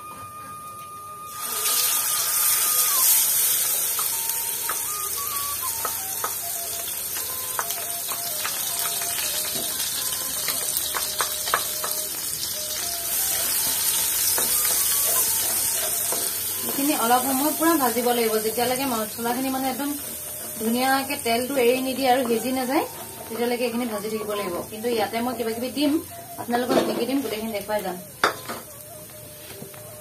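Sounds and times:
paste sizzling in hot oil: 1.3s - 23.8s
spatula scraping and tapping pan: 13.6s - 16.9s.

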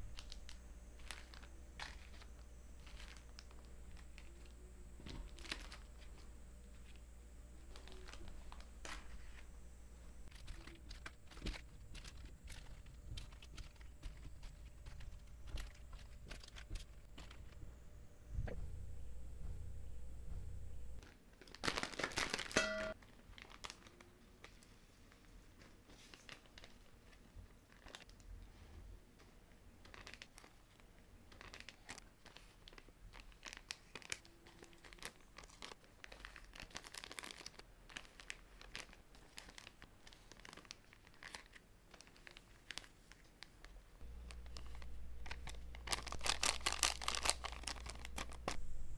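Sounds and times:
plastic sachets crinkling: 0.0s - 9.6s, 10.2s - 17.6s, 21.0s - 28.3s, 29.8s - 48.9s
plastic tearing rustle: 0.1s - 7.0s, 7.6s - 9.5s, 10.2s - 17.6s, 21.0s - 24.8s, 29.8s - 48.6s.

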